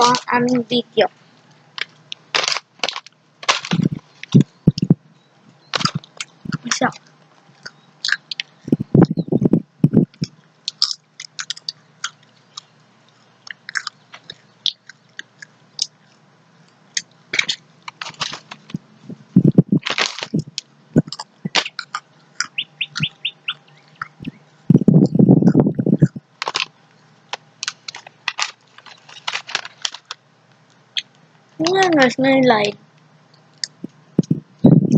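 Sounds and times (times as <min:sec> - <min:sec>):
crunchy chewing of chips: 0:01.3 - 0:04.9, 0:05.5 - 0:09.2, 0:09.8 - 0:18.9, 0:19.8 - 0:32.1
foil snack bag crinkling: 0:01.7 - 0:04.4, 0:17.3 - 0:18.8, 0:19.8 - 0:20.4, 0:26.4 - 0:30.2.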